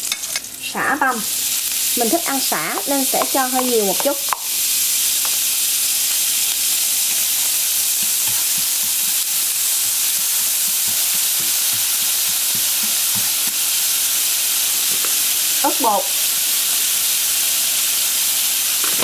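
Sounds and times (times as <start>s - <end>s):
food sizzling in oil: 0.0s - 19.0s
wooden utensil tapping pan: 2.8s - 4.5s.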